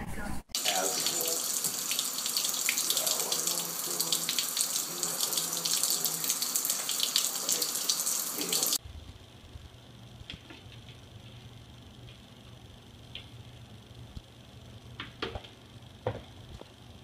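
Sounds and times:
faucet running into sink: 0.6s - 8.8s.

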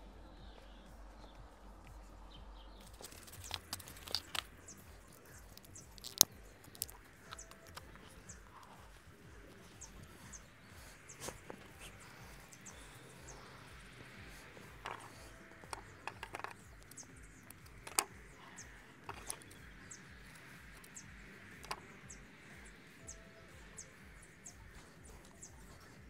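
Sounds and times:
high bird chirps: 0.1s - 26.0s
knife carving vegetables: 2.9s - 8.8s.

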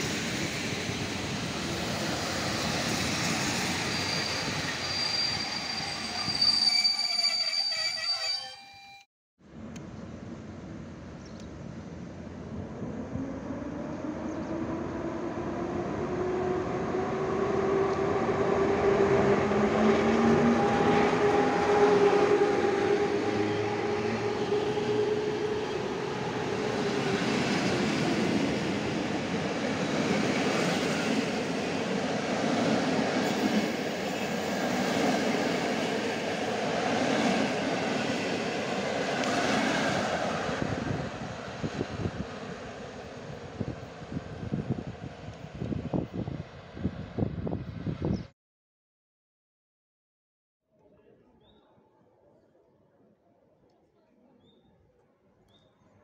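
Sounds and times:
electric locomotive whine: 12.3s - 46.9s.

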